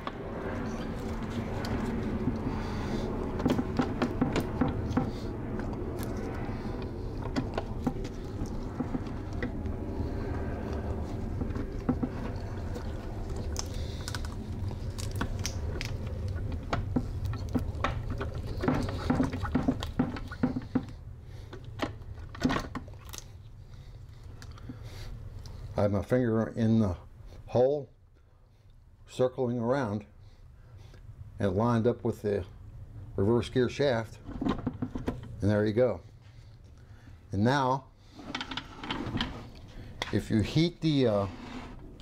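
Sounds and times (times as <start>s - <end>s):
steady low hum: 0.0s - 42.0s.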